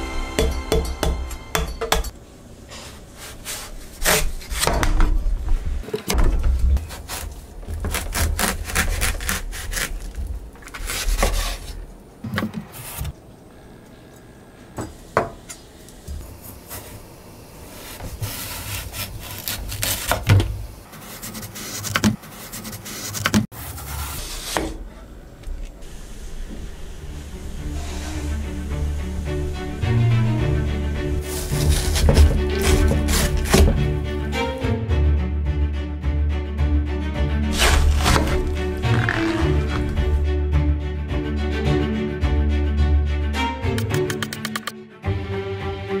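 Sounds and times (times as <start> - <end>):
knife sawing through melon rind: 6.8 - 11.8, 17.8 - 20.2, 31.2 - 34.0, 37.5 - 40.2.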